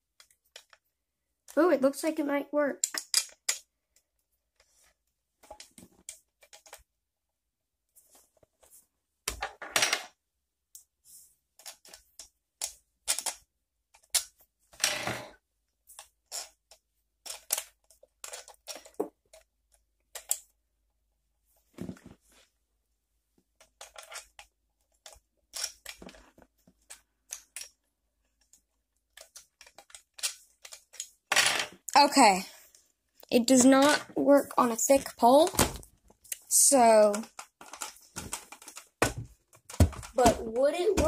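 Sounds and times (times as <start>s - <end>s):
plastic parts clicking and knocking: 0.1s - 0.9s, 2.8s - 6.9s, 11.6s - 15.0s, 15.9s - 20.6s, 23.5s - 32.0s, 34.9s - 41.0s.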